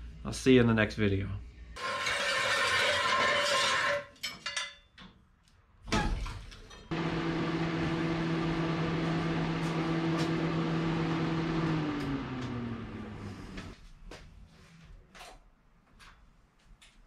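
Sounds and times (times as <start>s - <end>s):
machine motor hum: 6.9s - 13.8s.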